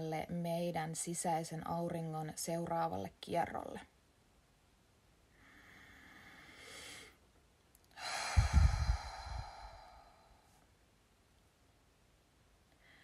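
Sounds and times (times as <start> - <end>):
woman breathing in: 5.3 - 7.2, 8.0 - 10.6
woman exhaling: 8.0 - 10.5.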